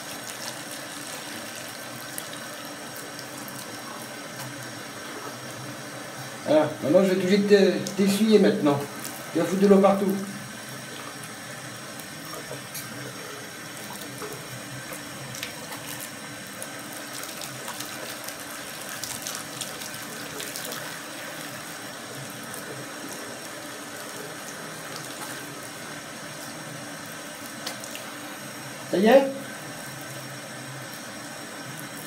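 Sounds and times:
water running from tap into basin: 0.0 - 32.0.

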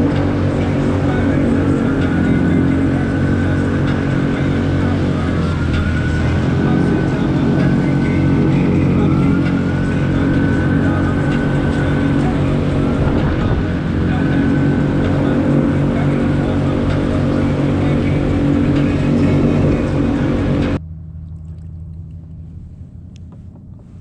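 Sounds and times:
water rushing along hull: 0.0 - 22.7
outboard motor running: 0.0 - 24.0.

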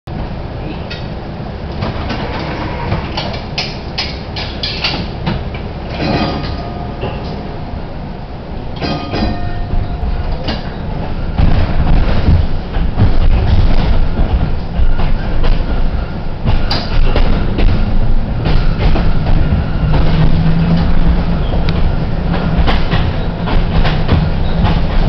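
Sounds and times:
streetcar rumbling on track: 0.0 - 25.0
wheels clacking over rail: 0.2 - 8.0, 8.6 - 25.0
wheel squeals: 1.8 - 3.8, 8.8 - 12.6, 14.0 - 25.0.

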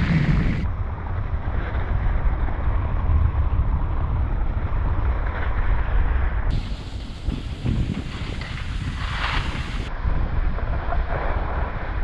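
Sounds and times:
wind buffeting microphone: 0.0 - 12.0
skis sliding over snow: 5.1 - 9.9, 10.6 - 12.0.

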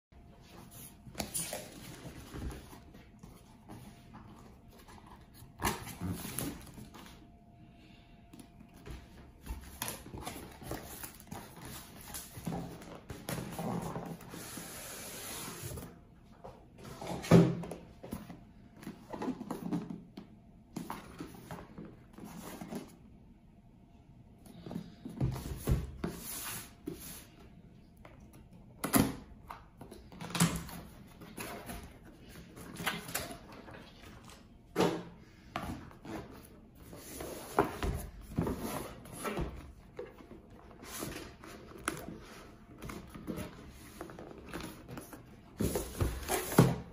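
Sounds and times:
cardboard boxes scraping and rustling: 35.8 - 46.9.

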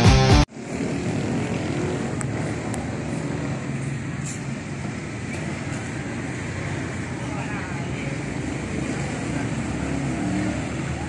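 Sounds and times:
road traffic noise: 0.0 - 11.0.

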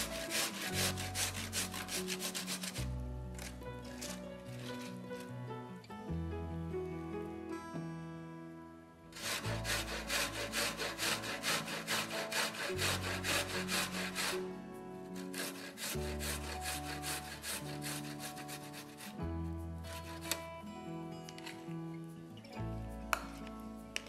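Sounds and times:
garlic rasping on a metal grater: 0.0 - 5.0, 9.2 - 14.4, 15.2 - 19.2.

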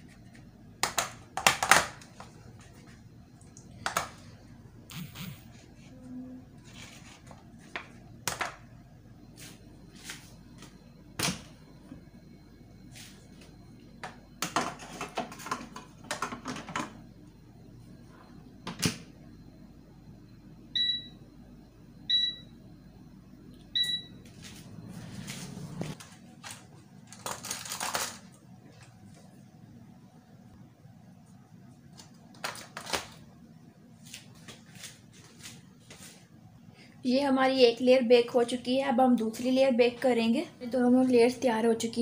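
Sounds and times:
short electronic beeps: 22.1 - 22.5, 23.8 - 24.2.

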